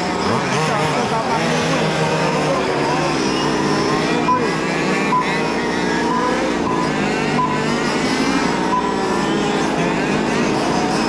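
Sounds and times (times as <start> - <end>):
toy race car motors whining: 0.0 - 11.0.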